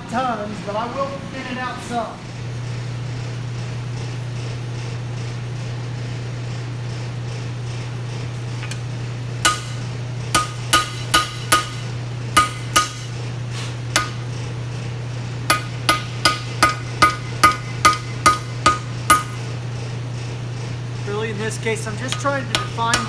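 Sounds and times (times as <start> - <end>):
steady low hum: 0.0 - 23.0
hammer striking hot steel on anvil: 9.4 - 13.2, 13.9 - 14.3, 15.5 - 19.4, 22.0 - 23.0.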